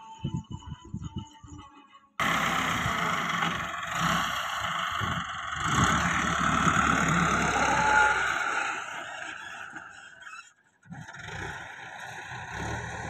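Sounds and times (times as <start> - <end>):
tractor diesel engine running: 2.2 - 10.2, 10.8 - 13.0.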